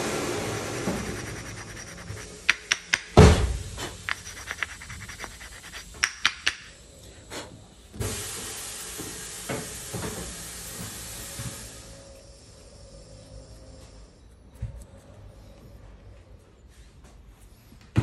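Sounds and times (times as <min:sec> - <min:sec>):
aerosol can spraying hiss: 0:00.0 - 0:06.7, 0:07.3 - 0:12.7
brake pads clicking and knocking: 0:02.3 - 0:06.7.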